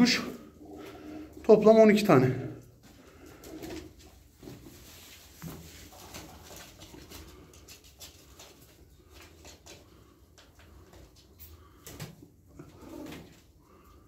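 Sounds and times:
soft pigeon sounds: 0:02.4 - 0:14.0.

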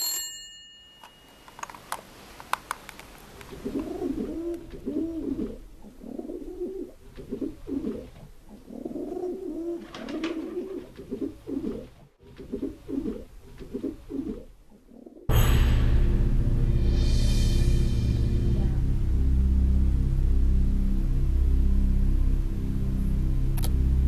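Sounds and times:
pigeon cooing: 0:03.3 - 0:15.3.

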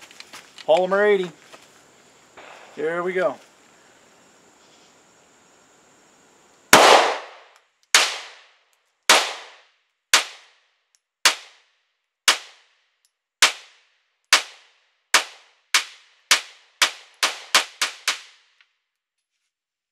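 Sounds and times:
pistol shots with ringing tail: 0:06.7 - 0:08.4, 0:09.1 - 0:09.6.

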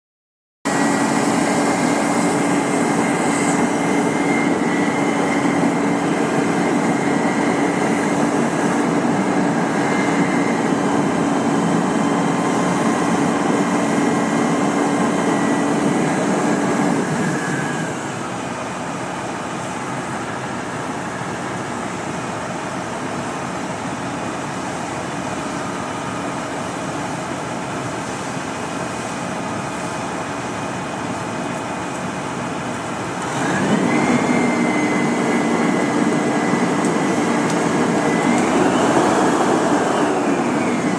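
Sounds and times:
crane truck and wood chipper running: 0:00.7 - 0:40.9
engine winding down: 0:33.1 - 0:40.9.

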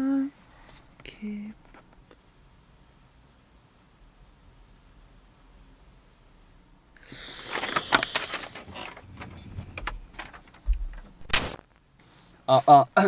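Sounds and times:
paper rustling: 0:07.1 - 0:11.6
low thump: 0:09.3 - 0:11.4.

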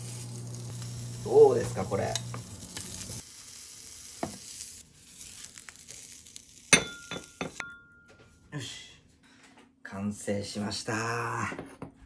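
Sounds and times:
sausages sizzling in a pan: 0:00.0 - 0:07.6
sharp metallic clink: 0:06.7 - 0:08.1.

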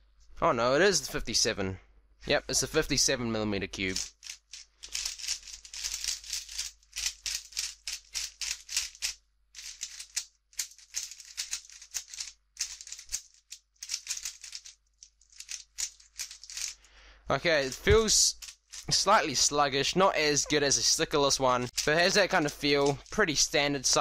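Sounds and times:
puzzle cube plastic clicking: 0:03.9 - 0:16.8, 0:21.5 - 0:24.0.

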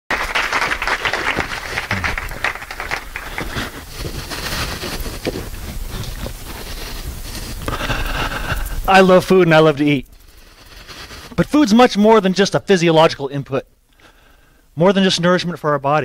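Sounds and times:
audience applauding: 0:00.1 - 0:04.8.

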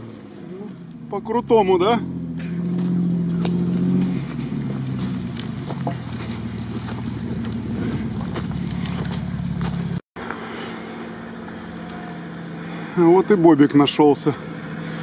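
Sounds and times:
car engine running at low revs: 0:00.0 - 0:15.0
light crackles: 0:04.3 - 0:07.7.

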